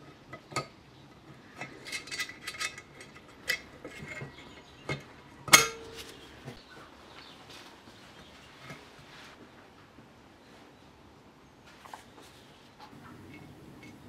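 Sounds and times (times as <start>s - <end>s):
metal clicks and clinks: 1.6s - 4.3s.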